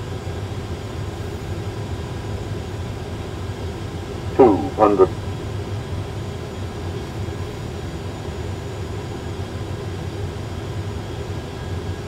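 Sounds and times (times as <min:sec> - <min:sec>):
cockpit drone: 0:04.3 - 0:05.2.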